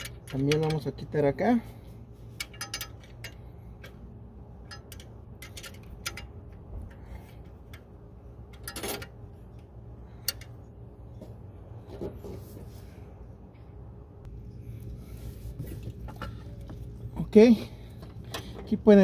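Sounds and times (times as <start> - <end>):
wrench clicking on metal parts: 0.0 - 1.1, 2.3 - 4.0, 4.6 - 10.6
steady low hum: 0.0 - 19.0.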